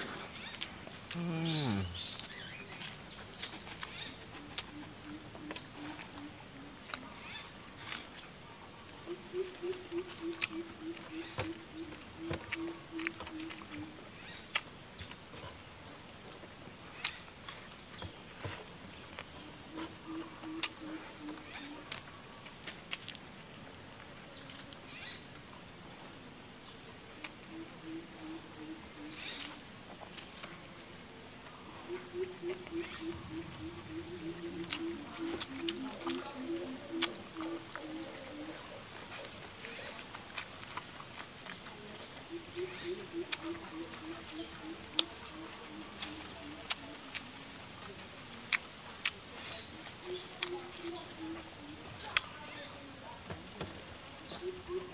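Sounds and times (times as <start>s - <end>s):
low pulsing animal call: 0.0s - 2.5s, 31.8s - 39.4s
person chewing: 0.0s - 6.2s, 9.2s - 15.7s, 18.4s - 23.8s, 32.2s - 41.8s, 42.6s - 51.1s
high insect drone: 0.0s - 54.9s.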